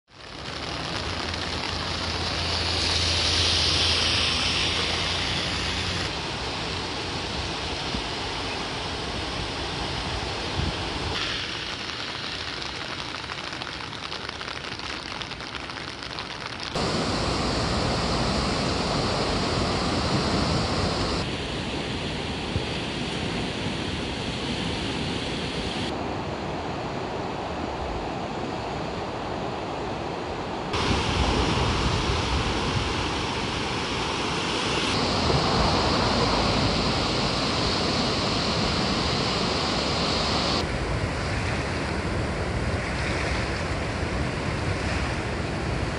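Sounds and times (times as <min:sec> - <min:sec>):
floodwater rushing: 0:00.1 - 0:21.4, 0:30.7 - 0:45.9
wind on microphone: 0:00.2 - 0:11.3, 0:16.8 - 0:26.5, 0:30.7 - 0:45.9.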